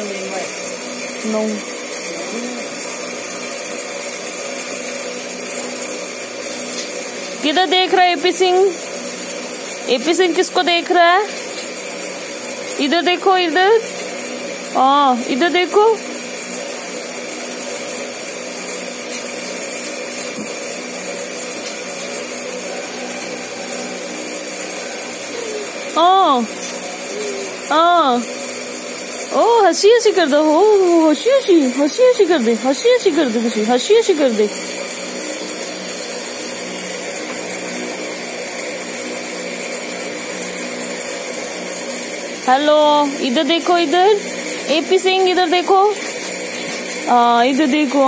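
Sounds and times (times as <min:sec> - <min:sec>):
electric motor humming: 0:00.0 - 0:48.0.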